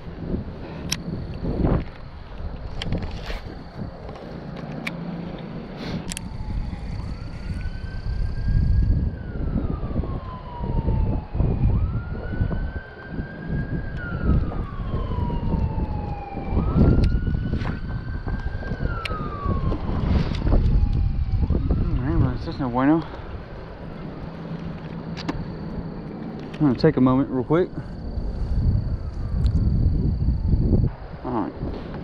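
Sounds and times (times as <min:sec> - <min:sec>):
wind rumbling on microphone: 0:00.0 - 0:32.0
ambulance siren wailing: 0:06.1 - 0:30.9.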